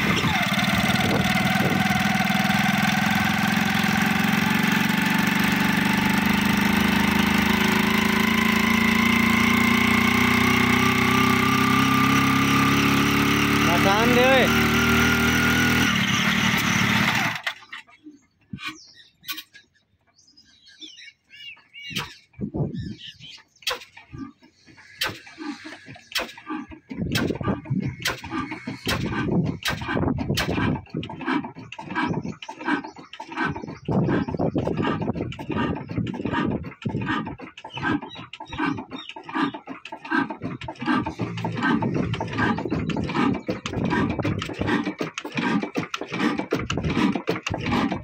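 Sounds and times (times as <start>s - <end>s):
diesel engine exhaust chugging: 0.0s - 17.6s, 24.6s - 48.0s
small birds chirping: 16.6s - 29.7s, 30.9s - 48.0s
low engine rumble: 33.8s - 45.2s.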